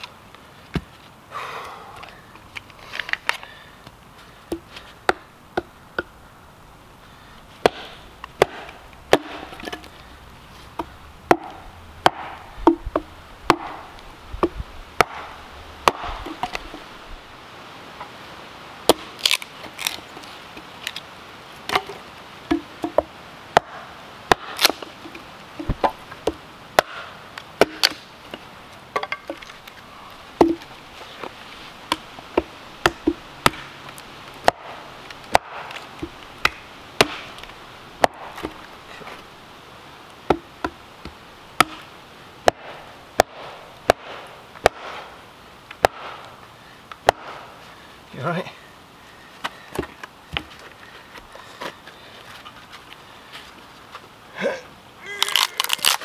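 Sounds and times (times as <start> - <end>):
wood being chopped: 4.5 - 6.1, 7.6 - 9.9, 10.7 - 16.8, 18.8 - 21.0, 21.7 - 28.1, 28.9 - 29.6, 30.4 - 30.7, 31.9 - 38.7, 40.2 - 45.1, 45.7 - 46.3, 46.9 - 47.5.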